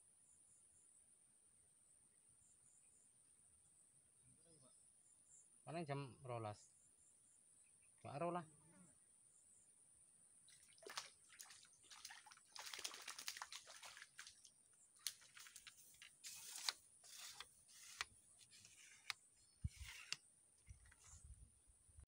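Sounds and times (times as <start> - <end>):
small splashes and drips on water: 10.5 - 16.2.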